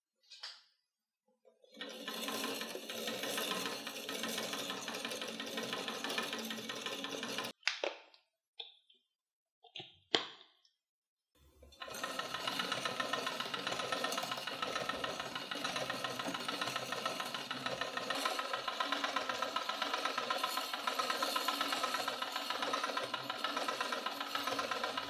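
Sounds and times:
film projector clattering: 1.8s - 7.6s, 11.6s - 25.0s.

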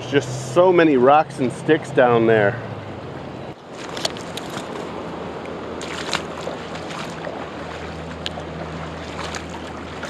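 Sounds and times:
river water rushing: 2.6s - 10.0s.

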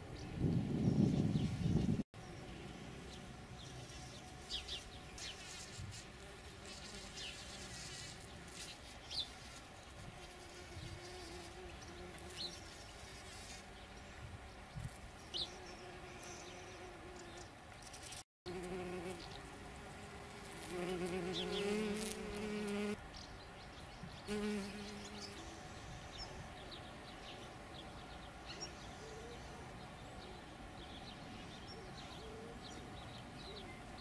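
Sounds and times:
bumblebees buzzing: 2.3s - 14.0s, 18.0s - 23.0s, 24.3s - 25.8s.

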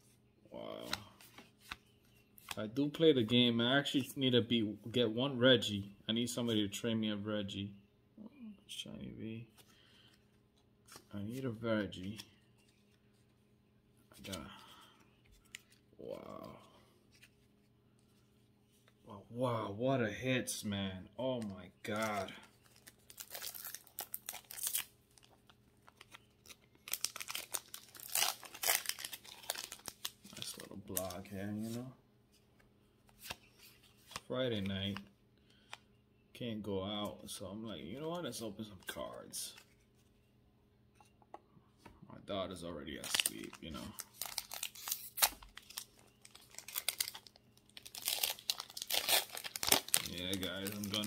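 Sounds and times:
foil wrapper crinkling and tearing: 21.9s - 31.1s, 43.0s - 51.0s.

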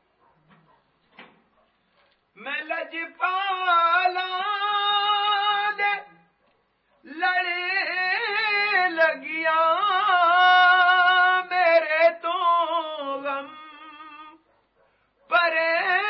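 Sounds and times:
person singing: 7.1s - 14.4s.

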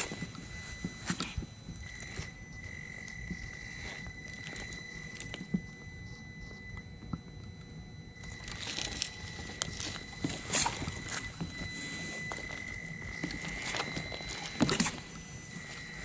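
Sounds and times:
small electric drive whining: 0.0s - 16.0s
tyres crunching on wood: 8.3s - 16.0s.

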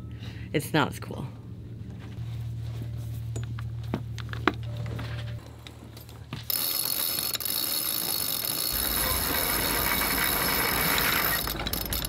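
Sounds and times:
winch ratcheting clicks: 6.5s - 12.0s.

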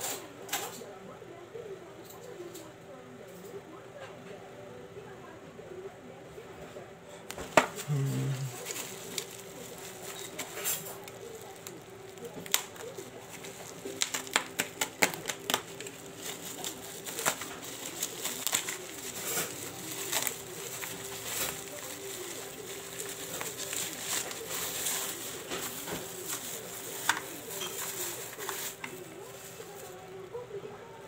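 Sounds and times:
plastic packaging crinkling: 7.3s - 30.4s.

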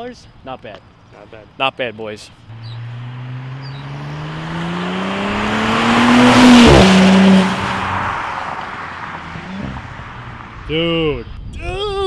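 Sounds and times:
car exhaust accelerating hard: 2.5s - 10.8s.

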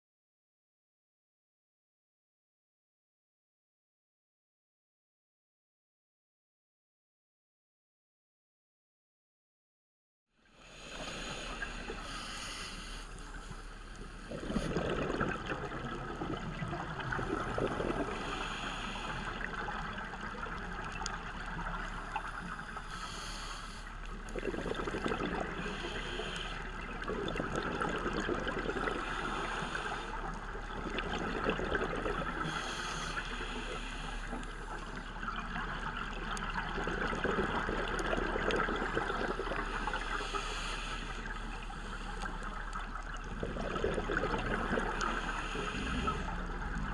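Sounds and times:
regulator inhale hiss: 10.6s - 14.8s, 17.6s - 19.6s, 22.0s - 24.0s, 25.5s - 26.8s, 28.8s - 30.3s, 32.3s - 35.0s, 39.5s - 42.5s, 44.8s - 46.6s
exhaled bubbles gurgling: 10.6s - 46.9s.

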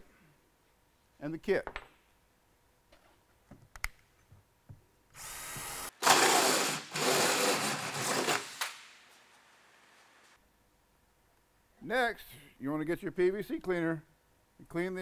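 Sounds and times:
drill hole saw cutting plastic pipe: 5.2s - 8.6s.

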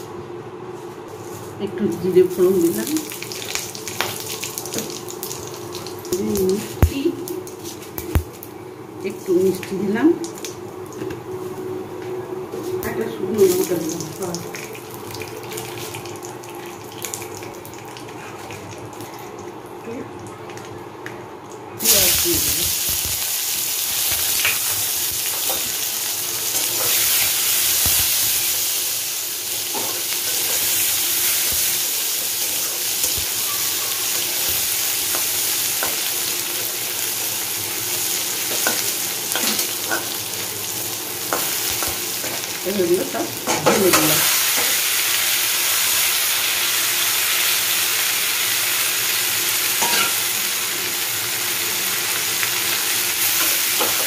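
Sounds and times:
onions sizzling in hot oil: 1.9s - 8.5s, 12.8s - 19.1s, 21.8s - 54.0s.

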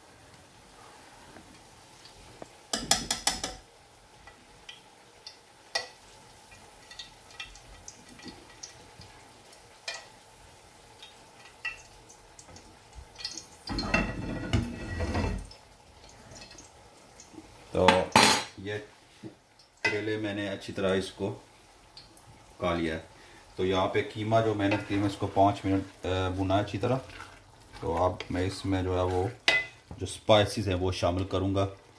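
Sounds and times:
metal tongs clinking on pan and plate: 9.8s - 10.1s.

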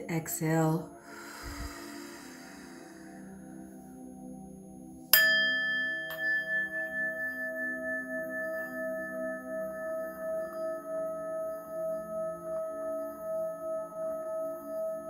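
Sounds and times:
singing bowl ringing: 5.1s - 15.0s.

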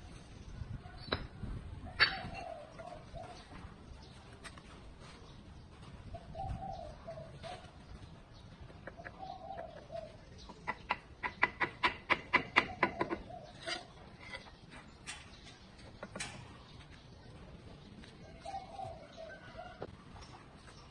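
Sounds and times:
bird cooing: 1.8s - 3.9s, 5.8s - 8.1s, 8.7s - 14.0s, 18.2s - 19.9s.

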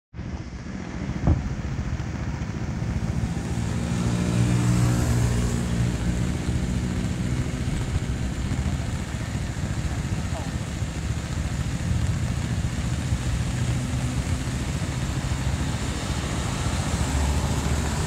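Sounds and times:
steady wash of noise: 0.2s - 18.0s
vehicle engine passing: 0.6s - 18.0s
sharp knock: 1.2s - 1.5s.

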